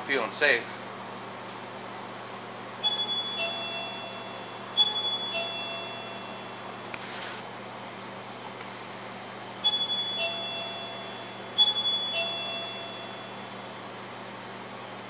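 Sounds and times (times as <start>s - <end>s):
steady hum: 0.0s - 15.0s
two-tone door chime: 2.8s - 6.9s, 9.6s - 13.7s.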